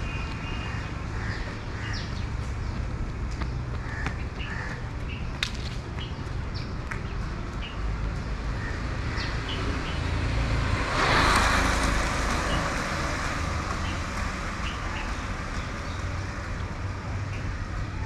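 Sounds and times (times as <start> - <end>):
distant traffic rumble: 0.0 - 18.0.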